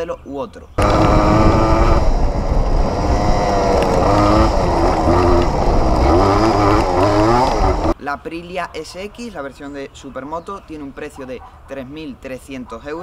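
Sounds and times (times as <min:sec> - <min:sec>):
motorcycle engine revving: 0:00.8 - 0:08.0.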